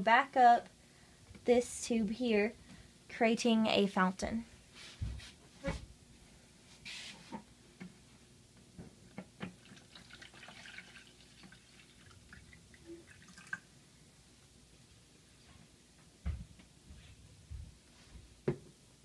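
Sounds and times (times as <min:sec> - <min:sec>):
water trickling and splashing: 0:09.6 - 0:13.6
water drips: 0:09.6 - 0:13.7.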